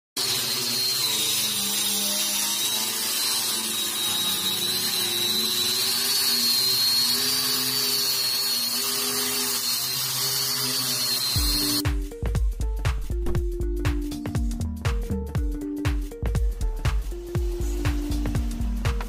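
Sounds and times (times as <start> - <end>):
disc grinding wood: 0.2 - 11.8
angle grinder whining: 0.2 - 12.0.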